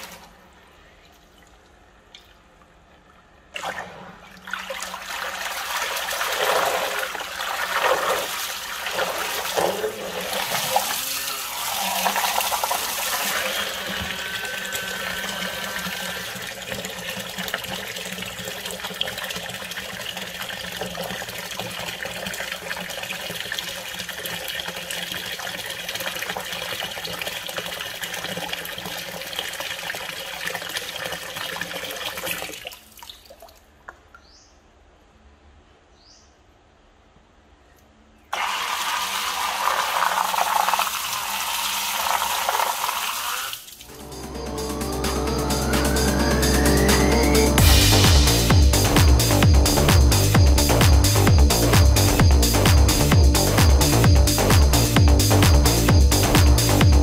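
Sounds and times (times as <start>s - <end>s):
water gushing and splashing: 3.5s - 33.4s
motor hum: 10.8s - 17.4s.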